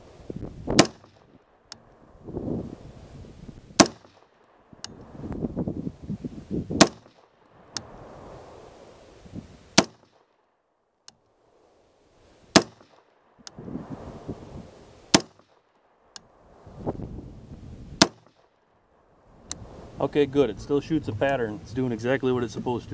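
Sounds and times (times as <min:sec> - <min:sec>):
rifle shots: 0:00.7 - 0:01.8, 0:03.8 - 0:04.8, 0:06.8 - 0:07.4, 0:09.7 - 0:10.4, 0:12.5 - 0:13.3, 0:15.1 - 0:15.7, 0:18.0 - 0:18.6.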